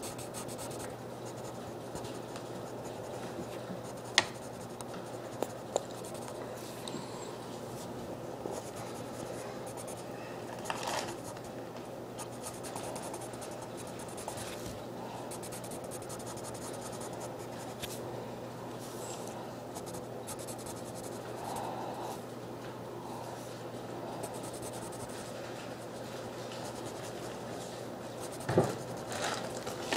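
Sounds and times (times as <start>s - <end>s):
pen scratching on paper: 0.0s - 2.1s, 12.2s - 14.4s, 15.3s - 17.8s, 19.8s - 21.2s, 24.3s - 25.2s, 26.6s - 27.3s, 28.1s - 29.1s
steady low hum: 0.0s - 29.9s.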